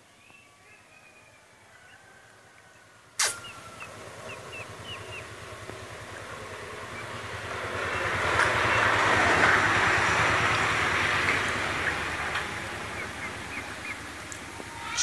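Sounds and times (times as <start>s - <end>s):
songbird chirping: 0.0s - 5.8s, 10.5s - 15.0s
passing motor vehicle engine: 3.2s - 15.0s.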